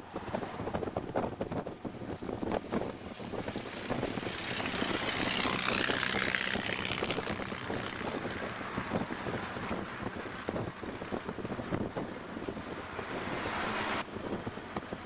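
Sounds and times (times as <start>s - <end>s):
wind noise on microphone: 0.0s - 15.0s
car engine running: 2.4s - 12.9s.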